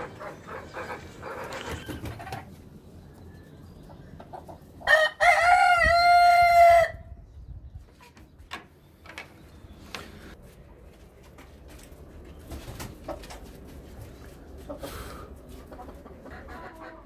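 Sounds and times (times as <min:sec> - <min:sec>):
rooster crowing: 0:04.9 - 0:07.0.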